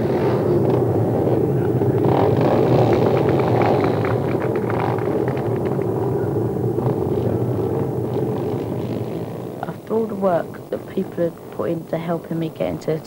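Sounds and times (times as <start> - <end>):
motorcycles idling: 0.0 - 13.0.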